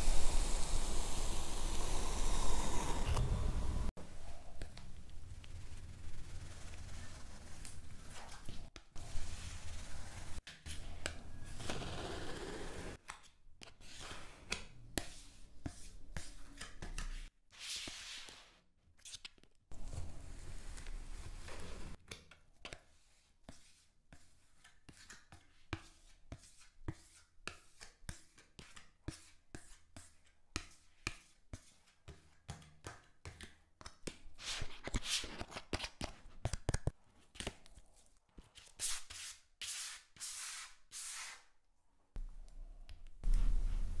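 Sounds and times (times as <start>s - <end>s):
grainy sand scraping strokes: 9.0s - 10.4s.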